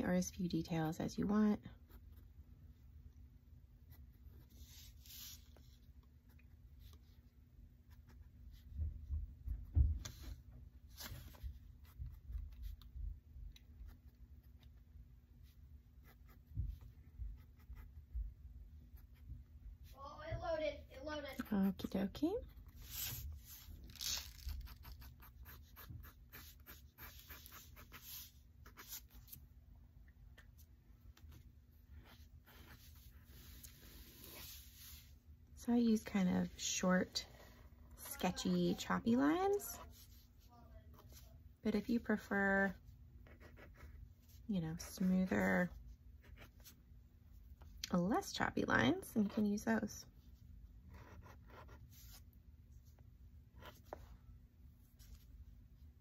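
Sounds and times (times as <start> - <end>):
marker scratching on paper: 3.9 - 5.7, 15.4 - 18.2, 21.0 - 29.4, 32.0 - 35.1, 43.2 - 46.8, 50.9 - 52.2, 53.6 - 54.1.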